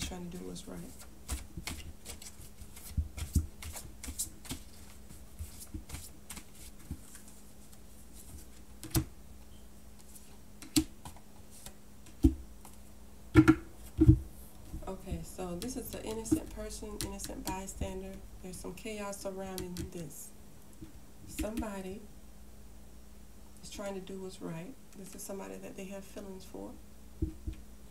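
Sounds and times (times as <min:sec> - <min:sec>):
cards being shuffled: 0:00.9 - 0:09.1.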